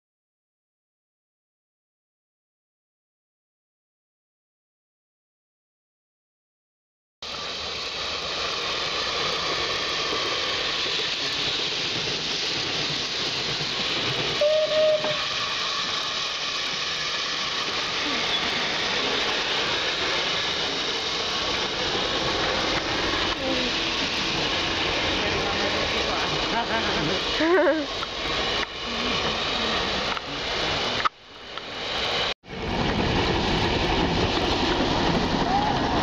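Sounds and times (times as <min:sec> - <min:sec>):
steam locomotive hissing: 0:07.2 - 0:36.0.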